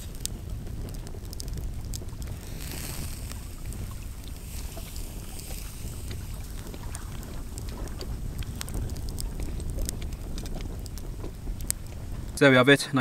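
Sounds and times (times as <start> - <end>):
campfire crackling and popping: 0.0 - 13.0
wind rumbling on microphone: 0.0 - 13.0.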